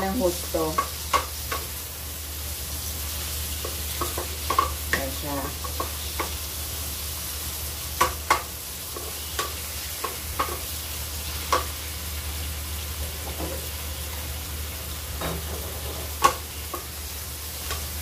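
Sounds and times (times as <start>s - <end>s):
frying sizzle: 0.0s - 18.0s
spatula clacking against pan: 0.7s - 1.7s, 3.6s - 6.4s, 8.0s - 10.7s, 11.5s - 11.7s, 16.2s - 17.0s
spatula scraping wok: 8.0s - 12.0s, 15.2s - 18.0s.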